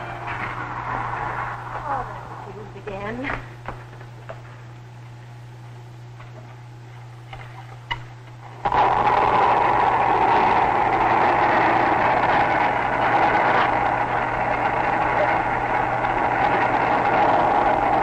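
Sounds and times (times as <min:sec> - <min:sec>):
loud rushing roar: 0:00.0 - 0:02.7, 0:08.6 - 0:18.0.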